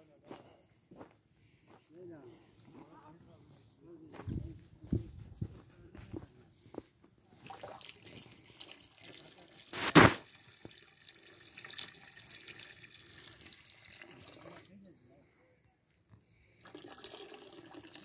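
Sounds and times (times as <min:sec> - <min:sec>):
liquid pouring and splashing: 0:07.4 - 0:14.8, 0:16.6 - 0:18.0
brief loud noise: 0:09.8 - 0:10.2.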